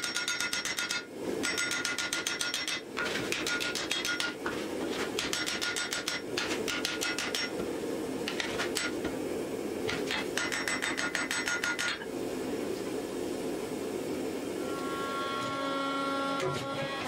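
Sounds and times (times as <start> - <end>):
hammer striking metal on anvil: 0.0 - 4.4, 5.2 - 7.6, 9.9 - 12.0.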